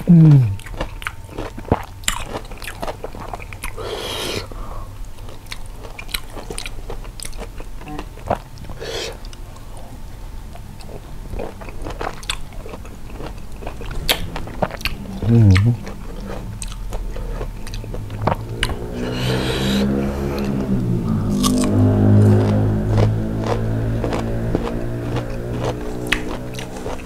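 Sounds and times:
crunching and chewing fruit: 0:00.0 - 0:27.0
breathy hissing: 0:03.8 - 0:04.9, 0:08.7 - 0:09.3, 0:18.9 - 0:20.6.

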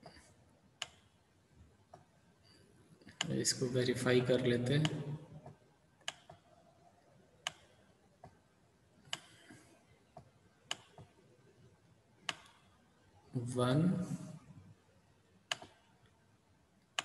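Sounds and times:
computer mouse clicks: 0:00.8 - 0:01.1, 0:04.8 - 0:06.5, 0:07.4 - 0:08.4, 0:09.0 - 0:09.6, 0:10.2 - 0:11.2, 0:12.2 - 0:12.7, 0:15.5 - 0:16.2.

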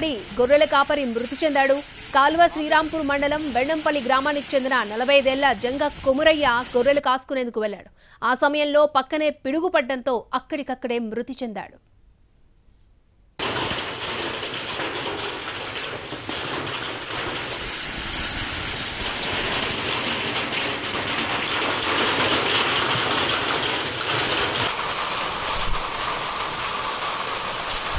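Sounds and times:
hail and rain falling: 0:00.0 - 0:07.0, 0:13.4 - 0:27.9.

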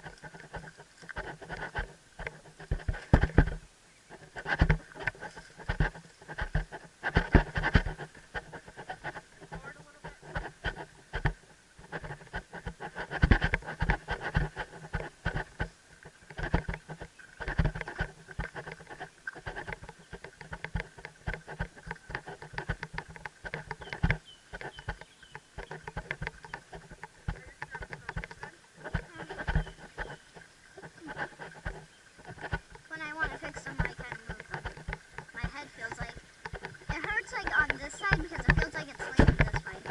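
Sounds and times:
camera knocking against helmet: 0:02.7 - 0:03.6.

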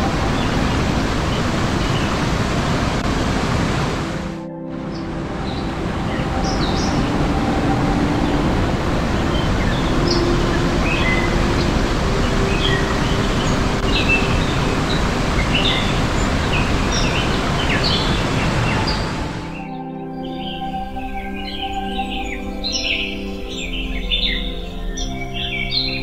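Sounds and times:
water rushing over rocks: 0:00.0 - 0:19.6
small birds chirping: 0:09.0 - 0:19.7.

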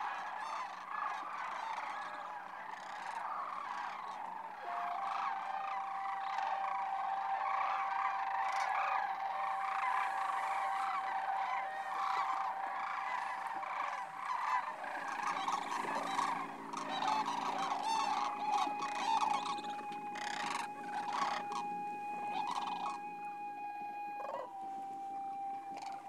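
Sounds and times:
cranes calling: 0:00.0 - 0:26.0.

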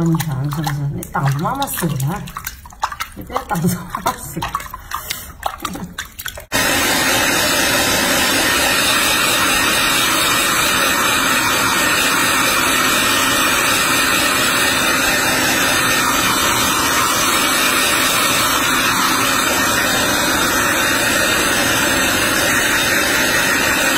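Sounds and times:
bath water splashing: 0:00.0 - 0:23.9
hair dryer blowing: 0:06.5 - 0:23.9.

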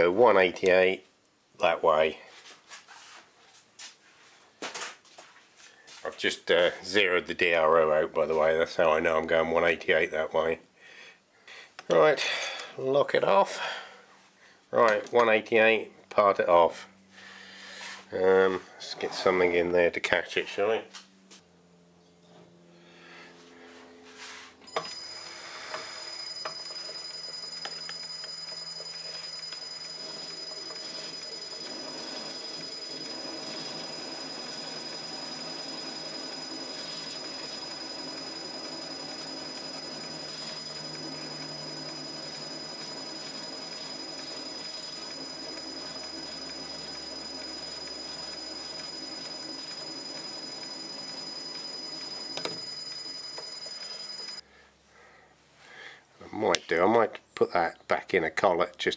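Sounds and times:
lathe motor whine: 0:23.2 - 0:54.4.

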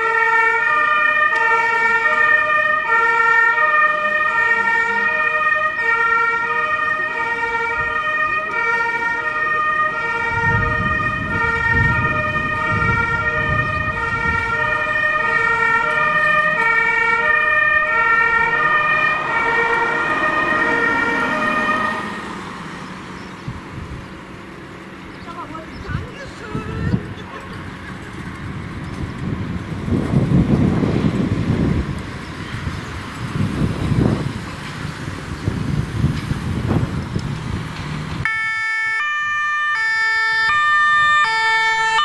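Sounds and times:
two-tone siren: 0:00.0 - 0:22.4, 0:38.2 - 0:42.0
vehicle engine rumble: 0:00.0 - 0:42.0.

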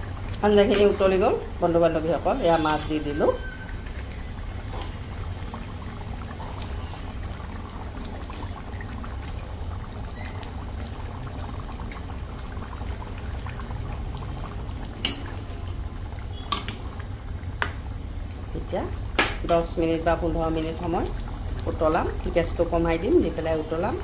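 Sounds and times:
curry bubbling at a boil: 0:00.0 - 0:24.0
spoon clinking against pan: 0:16.5 - 0:16.9.

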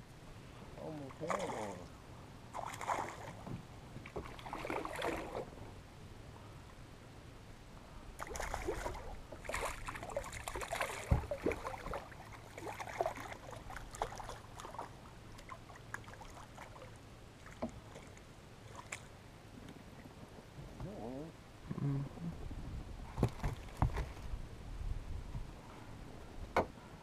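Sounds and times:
water splashing and sloshing: 0:00.8 - 0:05.9, 0:08.1 - 0:21.0, 0:23.1 - 0:24.4.

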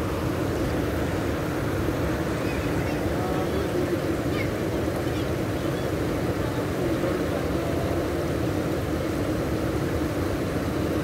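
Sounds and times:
floodwater rushing: 0:00.0 - 0:11.0.

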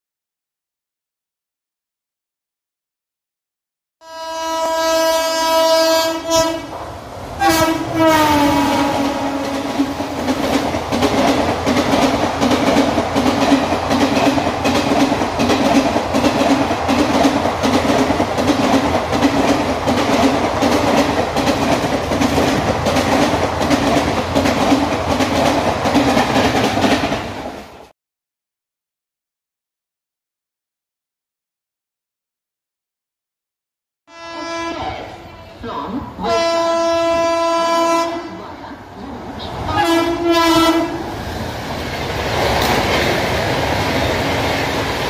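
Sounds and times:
locomotive horn blasts: 0:04.0 - 0:06.8, 0:07.4 - 0:09.6, 0:34.1 - 0:35.0, 0:36.2 - 0:38.4, 0:39.8 - 0:41.0
train wheels clattering on rails: 0:06.6 - 0:27.9, 0:41.2 - 0:45.0.

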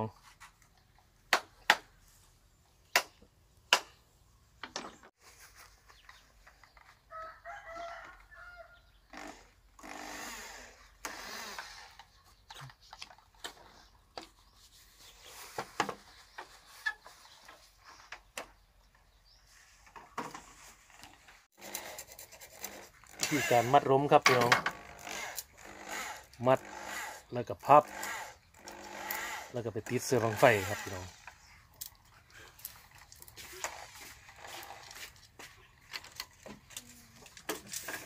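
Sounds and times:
rooster crowing: 0:07.1 - 0:08.9.

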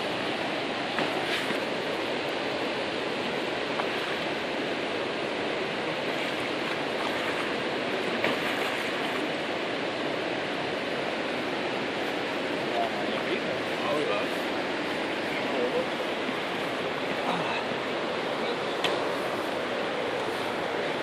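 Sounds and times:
river rapids rushing: 0:00.0 - 0:21.0.

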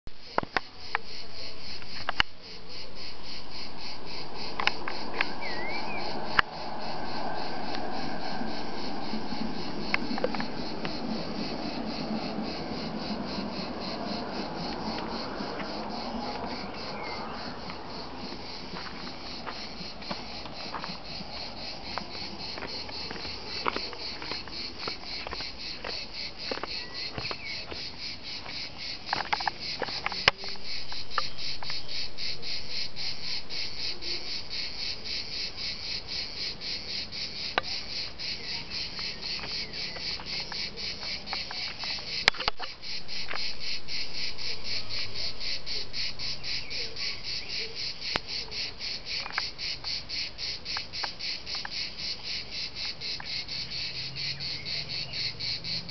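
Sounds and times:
cicadas pulsing buzz: 0:00.1 - 0:55.9.

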